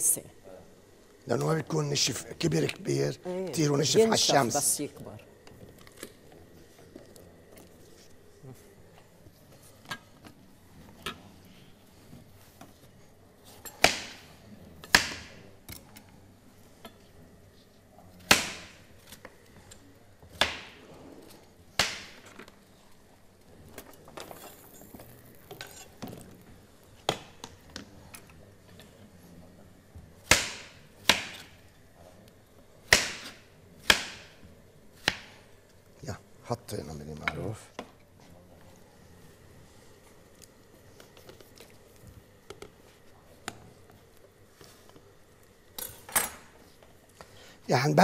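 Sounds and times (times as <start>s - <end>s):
knife chopping pumpkin on board: 14.9s - 15.3s, 18.3s - 18.8s, 30.2s - 31.6s, 32.8s - 34.3s, 35.0s - 35.4s.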